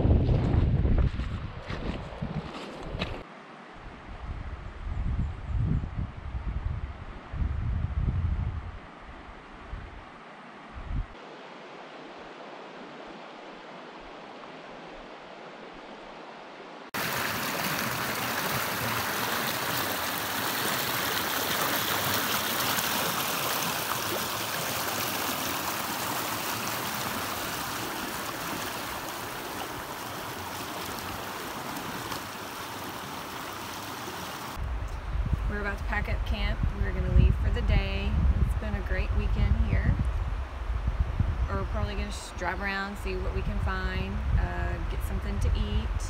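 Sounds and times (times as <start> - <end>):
river water flowing over stones: 11.2 - 34.6
whitewater rapids rushing: 16.9 - 34.6.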